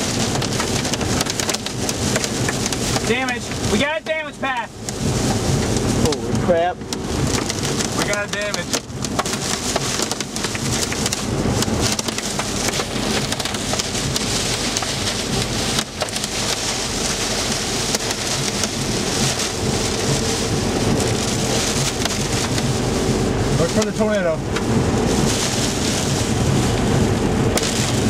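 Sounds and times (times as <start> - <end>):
heavy rain on car roof: 0.0 - 28.0.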